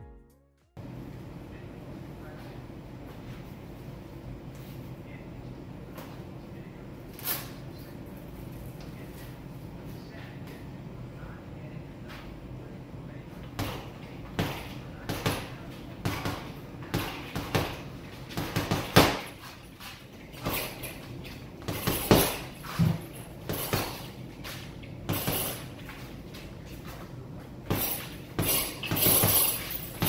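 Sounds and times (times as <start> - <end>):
gloves punching heavy bag: 13.6 - 19.4, 20.4 - 24.1, 25.1 - 25.6, 27.6 - 30.0.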